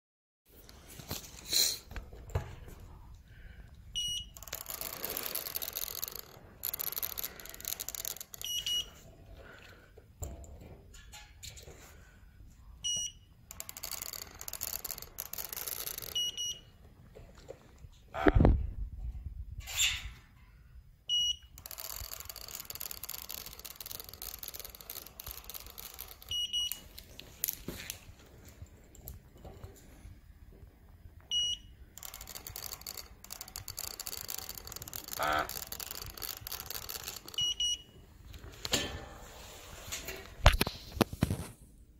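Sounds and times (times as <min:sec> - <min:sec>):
printer beeping: 0:04.0 - 0:09.0, 0:12.8 - 0:16.8, 0:21.1 - 0:27.0, 0:31.3 - 0:38.0.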